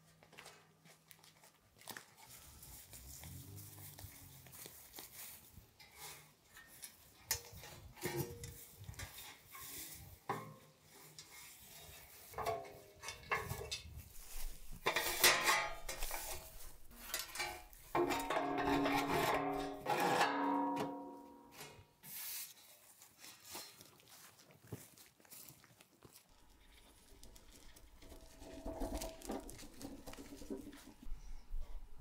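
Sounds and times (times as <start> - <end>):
sheet metal parts clattering: 12.2 - 21.8, 27.7 - 31.2.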